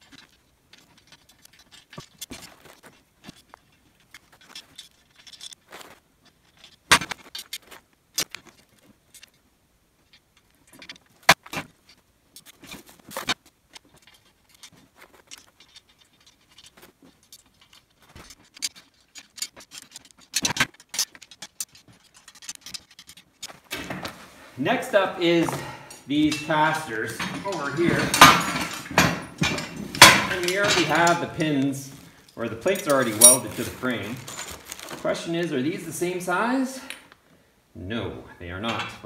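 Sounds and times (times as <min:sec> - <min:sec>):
metal bolts and nuts clinking: 0:00.0 - 0:09.4, 0:11.9 - 0:37.1, 0:38.5 - 0:39.0.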